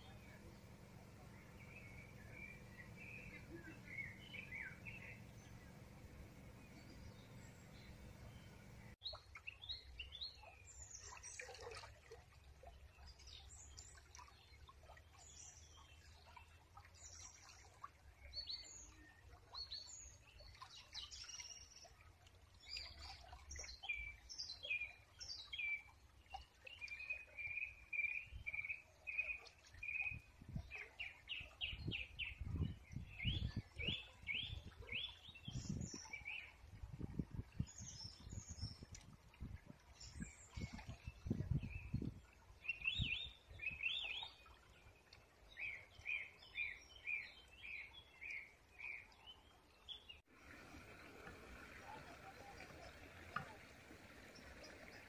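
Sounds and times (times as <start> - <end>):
birds chirping and trilling: 0.0 - 9.0.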